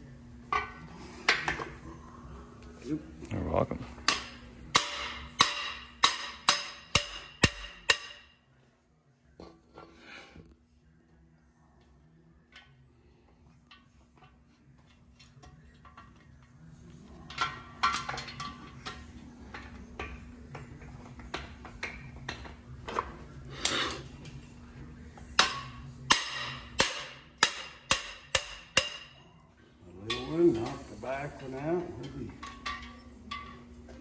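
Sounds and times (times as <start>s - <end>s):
hammer striking metal: 4.1s - 8.4s, 25.4s - 29.3s.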